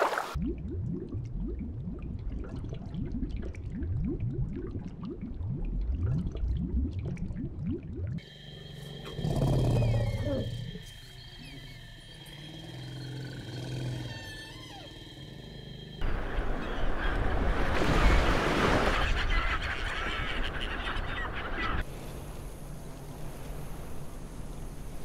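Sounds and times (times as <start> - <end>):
elephant rumble: 9.0 - 15.5.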